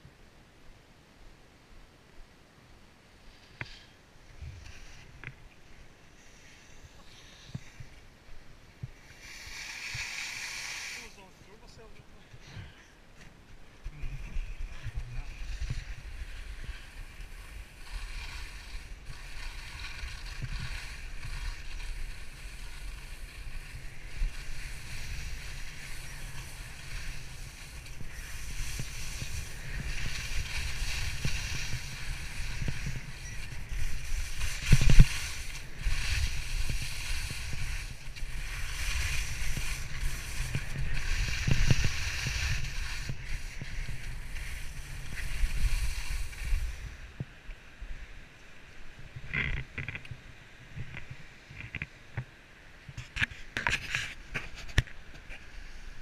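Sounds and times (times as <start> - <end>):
skis hissing over snow: 3.2 - 8.0, 8.9 - 12.6, 13.8 - 47.2
wind buffeting microphone: 13.6 - 47.3.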